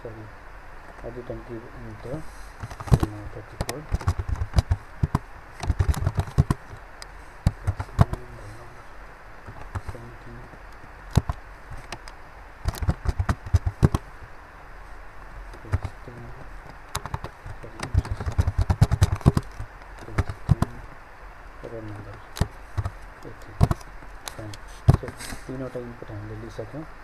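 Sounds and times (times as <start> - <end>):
keyboard typing clicks: 2.6 - 6.8, 7.4 - 8.2, 11.1 - 14.0, 15.5 - 16.0, 16.9 - 20.8, 22.3 - 25.1.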